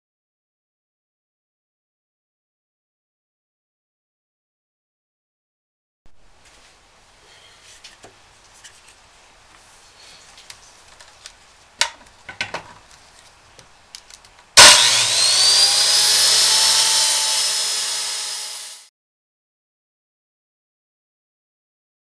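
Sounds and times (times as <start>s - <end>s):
circular saw whining: 14.6s - 18.9s.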